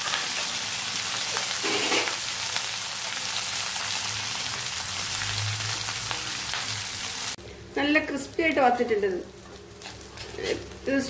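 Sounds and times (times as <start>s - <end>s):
oil sizzling in a pan: 0.0s - 11.0s.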